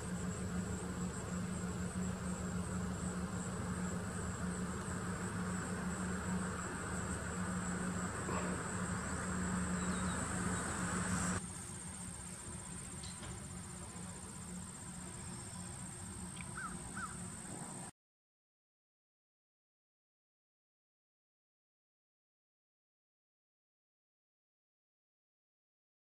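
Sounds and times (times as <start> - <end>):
insects trilling: 0.0 - 17.9
low steady hum: 0.0 - 17.9
bird chirps: 7.8 - 11.4.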